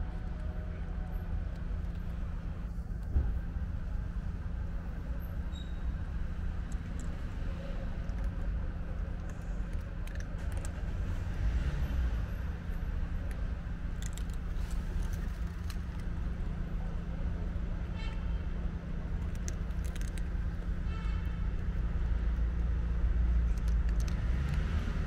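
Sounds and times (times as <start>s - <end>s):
low rumble and hum: 0.0s - 25.0s
cats crunching dry kibble: 6.4s - 11.4s, 13.0s - 17.1s, 18.9s - 24.7s.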